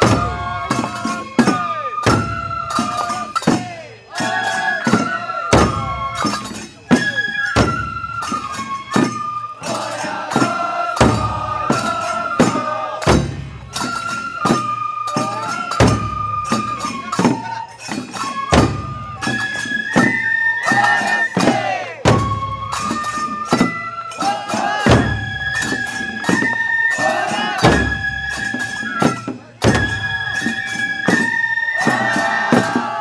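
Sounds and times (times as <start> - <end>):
taiko drum strikes: 0.0 - 3.7, 9.0 - 13.9, 21.4 - 22.4
bamboo flutes melody: 0.0 - 33.0.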